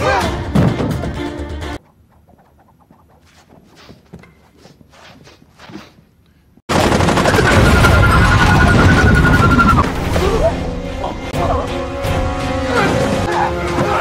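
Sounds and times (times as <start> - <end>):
rapid gunfire: 6.7 - 9.2
dramatic music score: 7.6 - 14.0.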